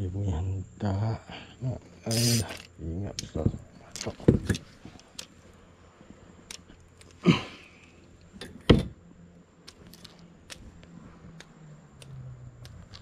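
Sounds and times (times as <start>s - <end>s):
fishing reel clicks: 2.0s - 2.7s.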